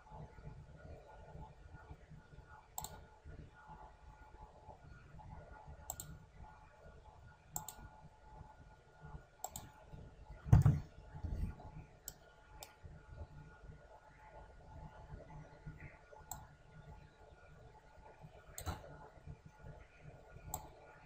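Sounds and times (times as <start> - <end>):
computer mouse clicks: 2.8 - 3.0, 5.9 - 6.2, 7.6 - 7.9, 9.4 - 9.7, 16.3 - 16.5, 18.6 - 18.9, 20.5 - 20.8
dull low thump: 10.5 - 11.5.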